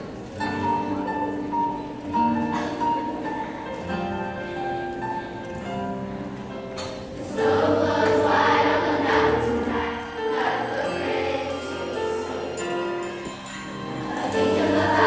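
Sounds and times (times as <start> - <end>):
sustained instrumental accompaniment: 0.0 - 15.0
children's choir singing: 6.8 - 15.0.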